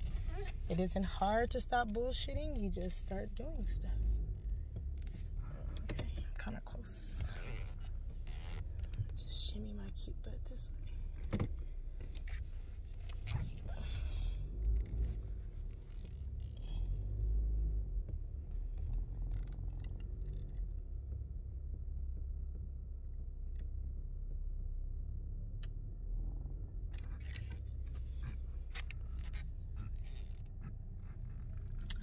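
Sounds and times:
car engine and tyres rumbling: 0:00.0 - 0:32.0
soft clicks and rustles: 0:04.4 - 0:17.4, 0:18.0 - 0:21.3.

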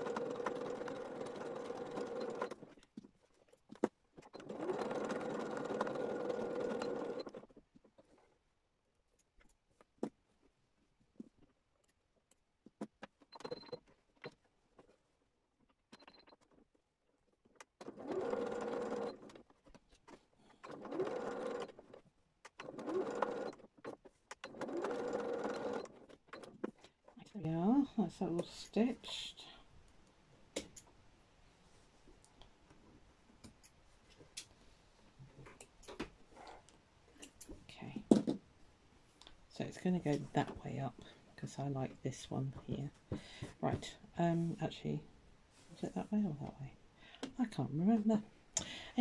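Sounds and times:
sewing machine stitching: 0:00.0 - 0:02.8, 0:04.2 - 0:07.6, 0:17.8 - 0:26.6.

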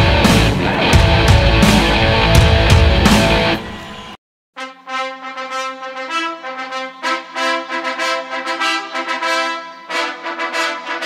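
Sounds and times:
background music of held notes: 0:04.6 - 0:11.0.

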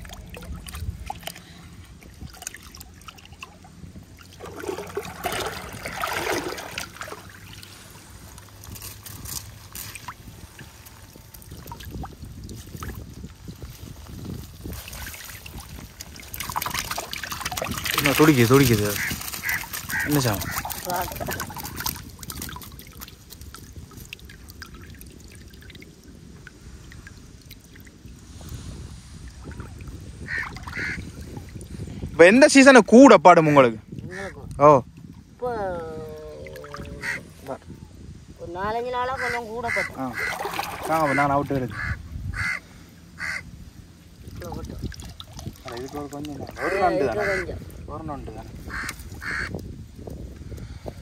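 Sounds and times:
shallow water sloshing: 0:00.0 - 0:37.7, 0:39.0 - 0:49.5
swishing in water: 0:00.0 - 0:37.7, 0:39.0 - 0:49.4
drops falling onto water: 0:15.5 - 0:24.6.

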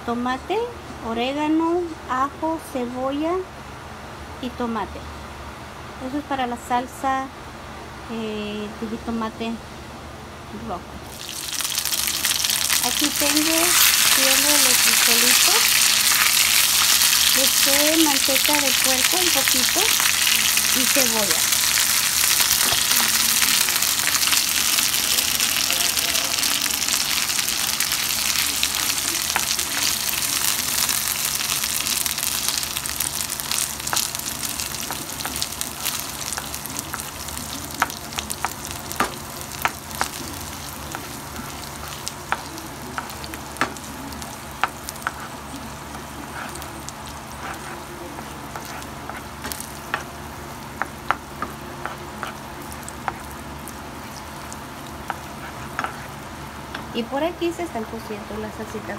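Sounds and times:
beans sizzling in a skillet: 0:11.1 - 0:57.7.

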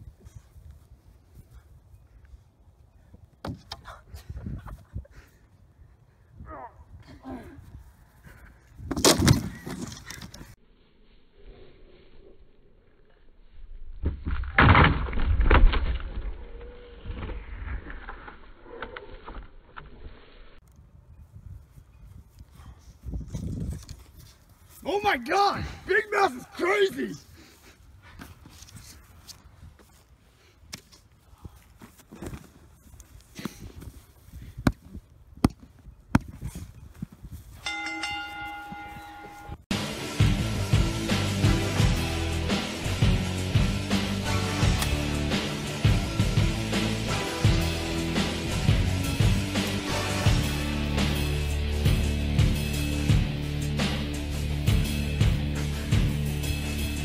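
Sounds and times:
rustling and scuffling: 0:19.9 - 0:24.9, 0:27.2 - 0:39.6
match bell ringing: 0:37.6 - 0:39.6.

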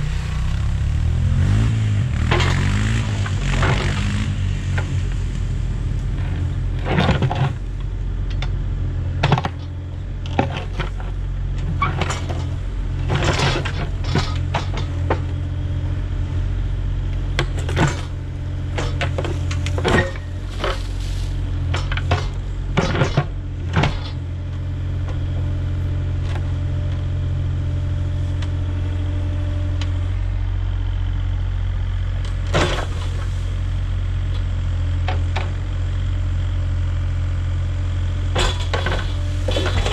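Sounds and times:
diesel engine running: 0:00.0 - 0:39.9
bucket scraping through stony soil: 0:20.1 - 0:23.1, 0:38.8 - 0:39.9.

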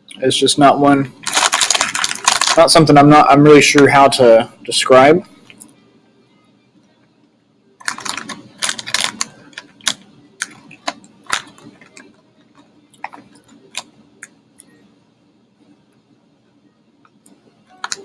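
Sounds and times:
crunchy snack crackling: 0:01.2 - 0:02.7, 0:07.8 - 0:12.1
snack packet handled: 0:01.2 - 0:02.7, 0:07.8 - 0:14.4.

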